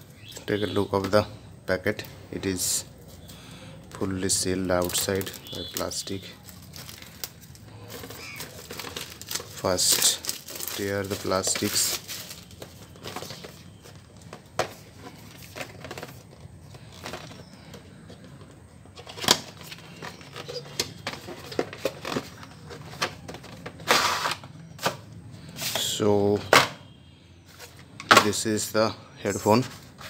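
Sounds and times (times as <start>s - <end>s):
plastic wrap crinkling: 4.3s - 17.5s.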